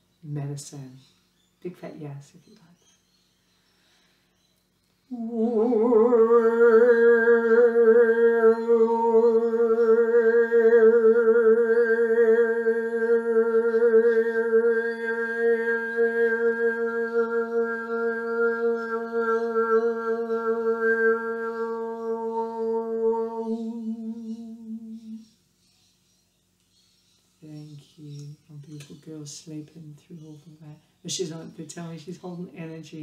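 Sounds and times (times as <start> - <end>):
woman holding a vocal note: 5.1 - 25.2.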